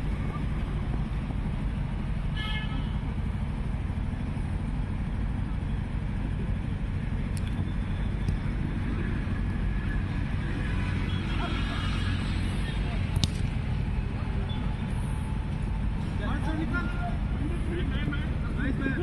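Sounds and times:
low background rumble: 0.0 - 10.9
vehicle horn toot: 2.3 - 3.0.

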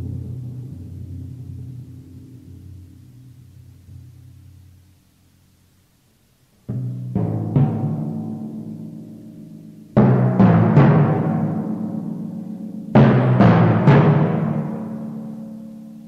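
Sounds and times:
timpani strokes ringing: 0.0 - 4.4.

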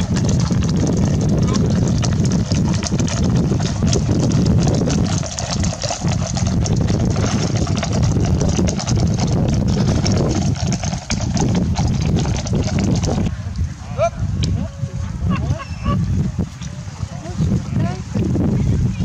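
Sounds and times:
horse hooves clattering: 0.0 - 13.3
wind buffeting microphone: 0.0 - 19.0.

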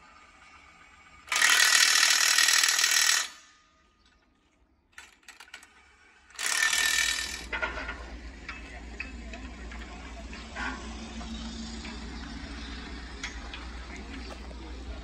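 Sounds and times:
impact wrench hammering: 6.4 - 7.6.

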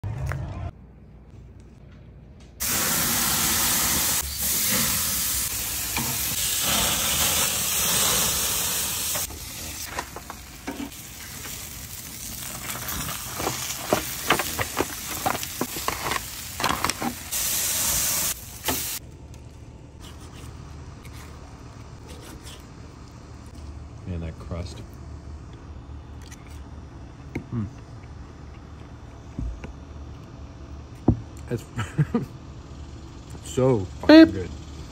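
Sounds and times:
food sizzling on a grill: 2.6 - 19.0.

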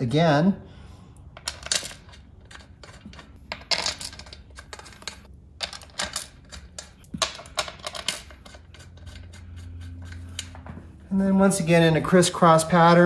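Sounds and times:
metal bolts clinking: 1.4 - 9.4.

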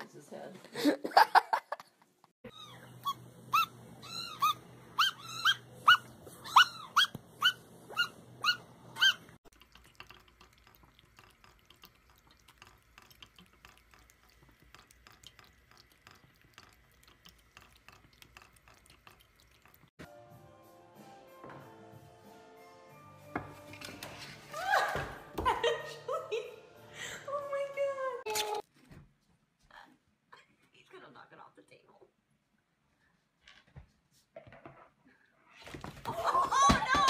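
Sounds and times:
dog whining: 2.4 - 9.4
tap water trickling into sink: 9.5 - 19.9
cat lapping water: 9.5 - 20.0.

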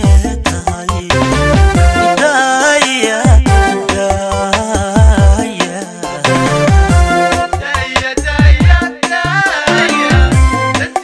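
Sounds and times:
held keyboard notes: 1.1 - 7.8, 9.3 - 11.0
song with deep drum hits: 6.7 - 8.8.

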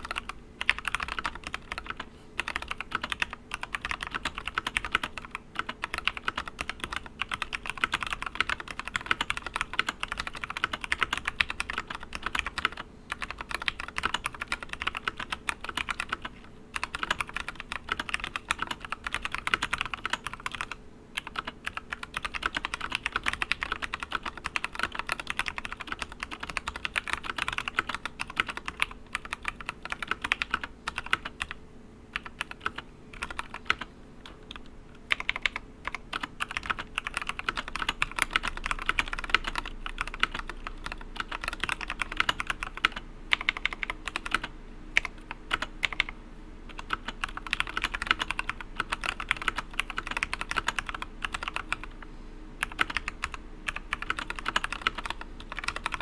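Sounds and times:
mechanical keyboard typing: 0.0 - 46.1, 46.7 - 52.0, 52.6 - 56.0.

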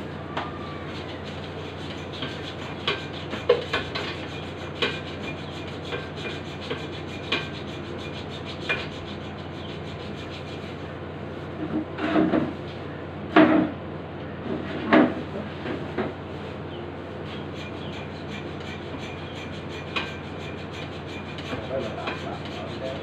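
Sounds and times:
low hum: 0.0 - 1.9
hand saw rasping: 0.9 - 10.8, 17.3 - 23.0.

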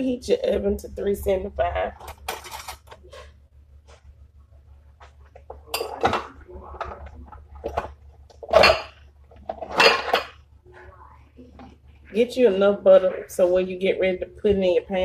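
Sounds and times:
steady low hum: 0.0 - 15.0
dishes and utensils clinking: 2.0 - 3.3, 5.3 - 10.4.

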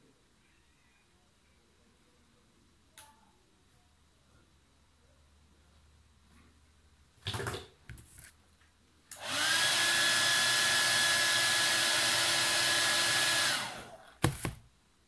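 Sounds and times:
hair dryer blowing with whine: 9.2 - 14.0.

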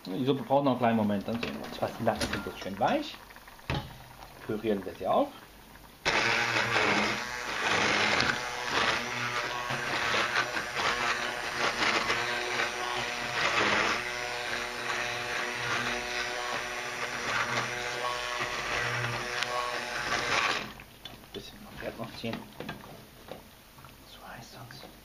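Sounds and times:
churning liquid: 0.0 - 14.6
immersion blender motor whine: 6.0 - 20.8.

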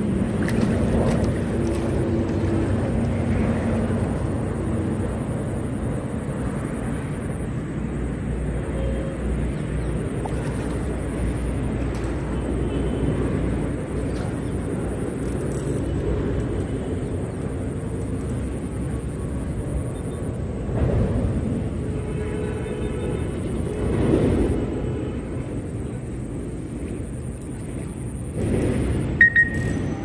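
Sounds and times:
low rumbling background noise: 0.0 - 30.0.

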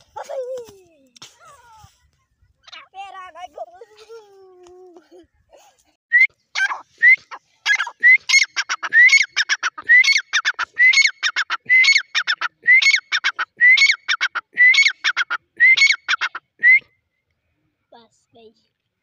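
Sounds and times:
francolin calling: 6.6 - 16.5.

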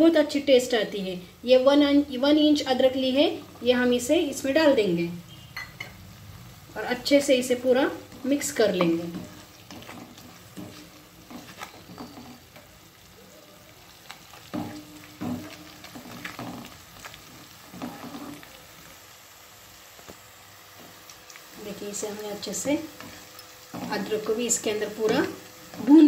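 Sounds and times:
vegetables sizzling in hot oil: 0.0 - 26.0
spatula scraping a pan: 8.1 - 12.7, 14.3 - 18.5.

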